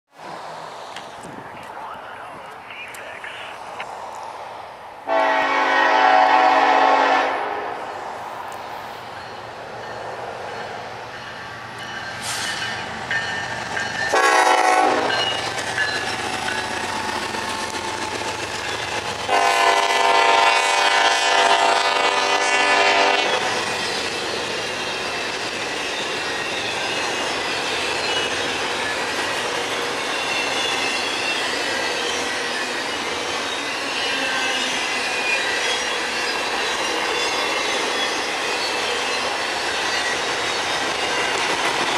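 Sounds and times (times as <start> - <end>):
locomotive horn blasts: 5.1 - 7.8, 14.1 - 15.2, 19.3 - 23.6
train cars rolling and clacking: 8.4 - 41.9.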